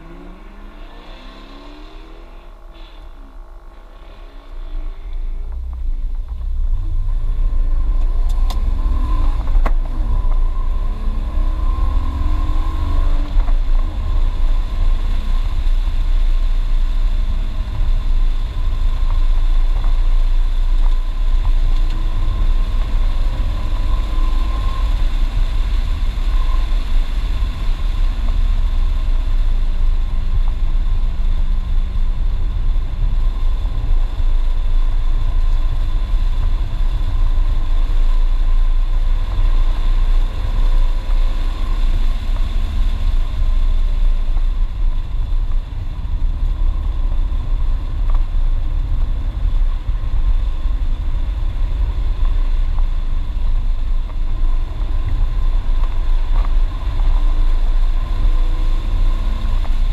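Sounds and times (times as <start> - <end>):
car engine revving: 0.0 - 45.2.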